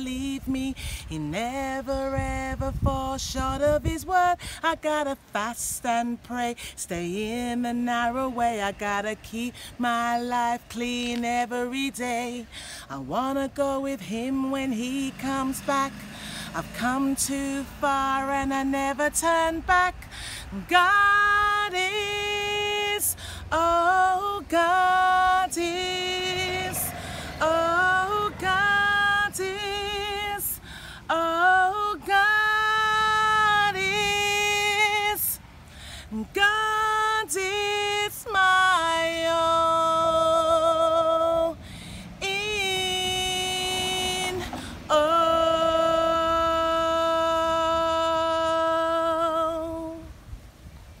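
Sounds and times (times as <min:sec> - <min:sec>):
woman singing unaccompanied: 0:00.0 - 0:51.0
singer breathing: 0:00.7 - 0:01.1, 0:04.4 - 0:04.6, 0:06.6 - 0:06.8, 0:09.5 - 0:09.8, 0:12.4 - 0:12.9, 0:16.0 - 0:16.6, 0:20.0 - 0:20.6, 0:23.1 - 0:23.5, 0:26.8 - 0:27.4, 0:30.6 - 0:31.1, 0:35.6 - 0:36.2, 0:41.6 - 0:42.2, 0:44.4 - 0:44.9.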